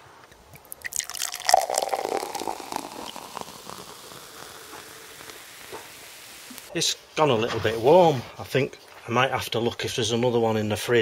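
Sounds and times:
cider pouring and fizzing: 0:00.3 - 0:06.7.

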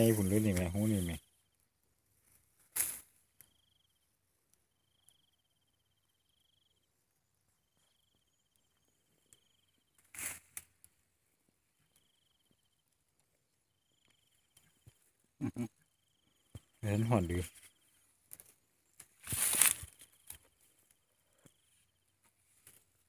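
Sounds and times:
insect trills: 0:00.0 - 0:11.0, 0:11.7 - 0:23.0
hand digging in soil rustling: 0:19.2 - 0:20.3.

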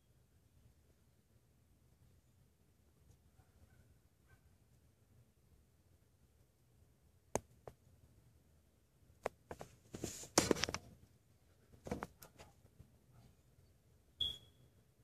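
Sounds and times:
camera handling clicks and rustles: 0:10.3 - 0:10.8.

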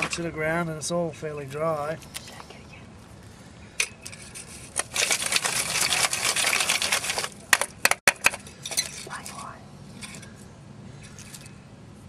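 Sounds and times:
wooden sticks rattling in metal tin: 0:04.0 - 0:09.4.

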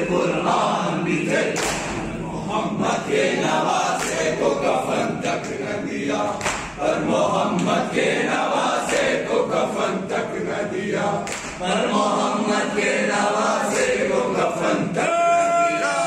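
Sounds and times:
men chanting a lament: 0:00.0 - 0:16.0
hands slapping on chests: 0:01.6 - 0:02.0, 0:04.0 - 0:04.3, 0:06.4 - 0:06.8, 0:11.2 - 0:11.6.

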